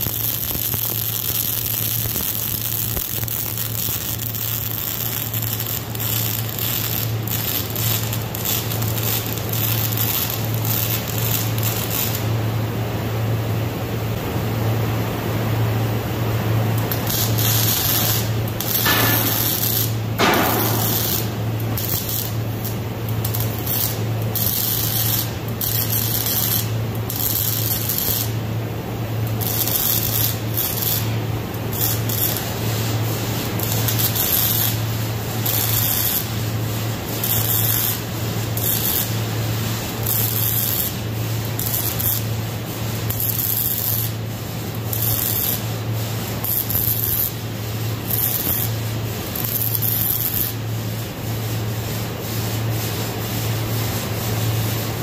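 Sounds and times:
steady low hum: 0.0 - 55.0
welding arc crackling and hissing: 0.0 - 55.0.

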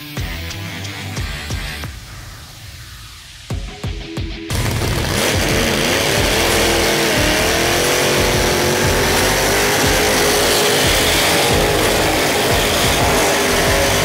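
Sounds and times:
engine revving high: 4.5 - 14.0
spinning tyres hissing: 4.5 - 14.0.

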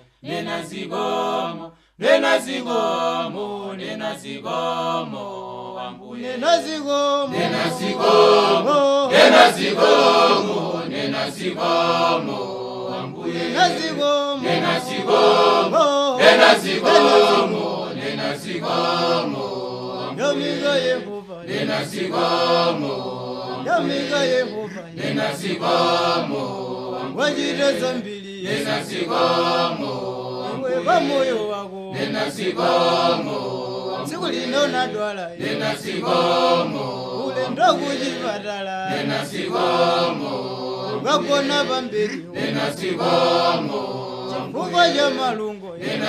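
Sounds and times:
choir singing unaccompanied: 0.0 - 46.0.

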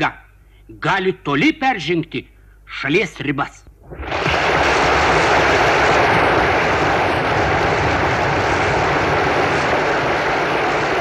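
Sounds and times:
loud steady roar: 4.1 - 11.0.

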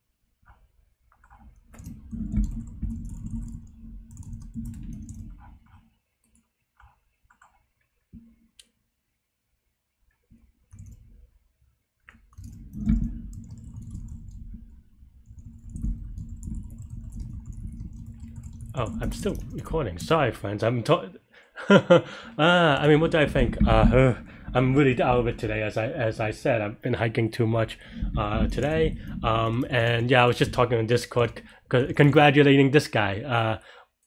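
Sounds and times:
rapid typing on keyboard: 1.1 - 7.6, 10.7 - 11.1, 12.1 - 20.5, 28.0 - 32.5.

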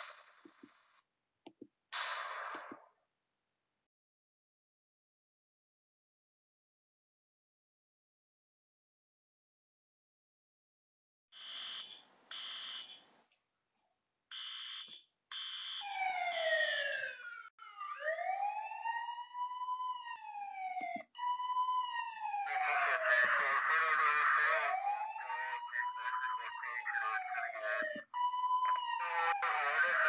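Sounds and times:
electronic alarm bursts: 11.4 - 13.0, 14.3 - 17.0, 22.1 - 30.0
police sirens wailing: 15.8 - 30.0.

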